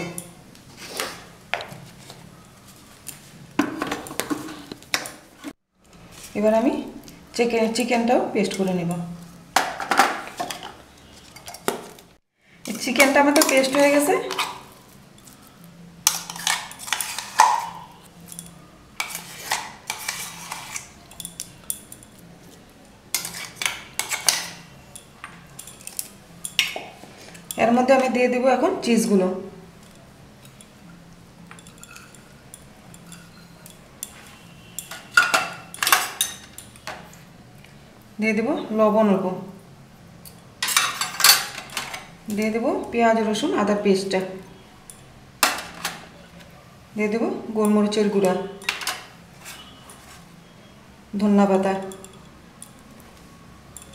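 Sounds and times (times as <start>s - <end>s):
metal spoon scraping steel: 16.0s - 22.2s, 23.1s - 24.6s, 48.4s - 50.1s.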